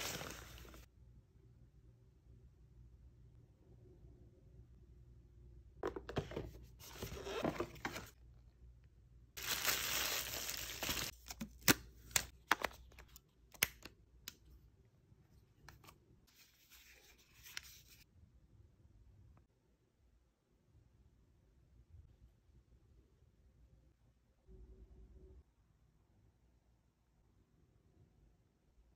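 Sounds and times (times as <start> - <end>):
packaging rustling and tearing: 0.0 - 0.8, 9.4 - 12.2.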